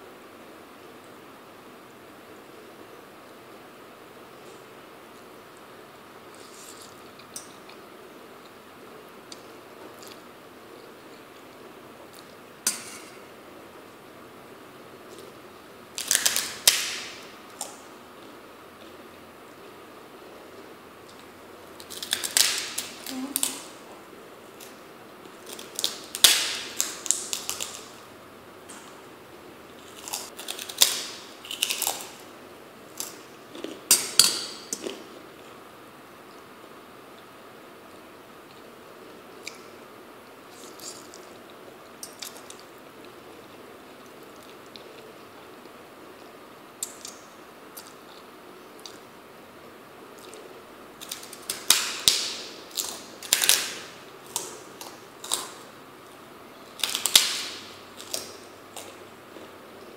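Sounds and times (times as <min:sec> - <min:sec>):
cracker crunching and chewing: 0:50.1 - 0:59.9.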